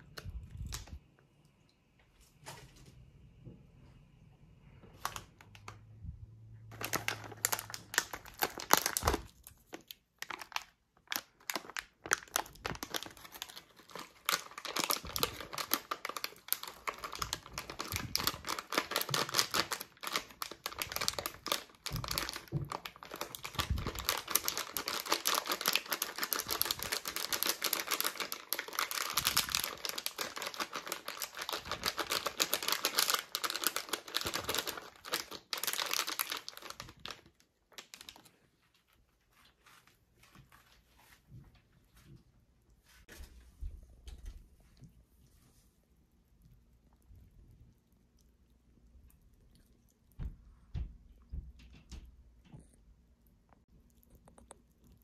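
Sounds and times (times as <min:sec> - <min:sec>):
plastic packet crinkling: 0:04.9 - 0:06.0, 0:06.6 - 0:38.9.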